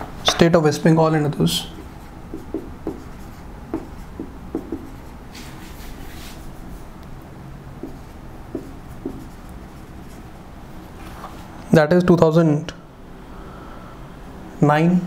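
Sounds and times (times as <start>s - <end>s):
marker squeaking on whiteboard: 1.7s - 6.4s, 7.8s - 10.3s
marker scratchy stroke: 1.8s - 6.8s, 7.8s - 10.3s.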